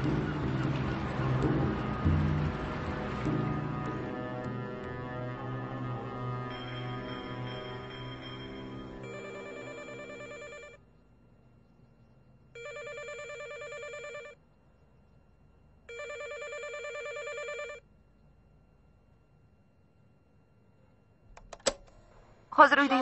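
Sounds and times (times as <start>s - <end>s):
telephone ringing electronic trill: 6.5s - 10.8s, 12.6s - 14.4s, 15.9s - 17.8s.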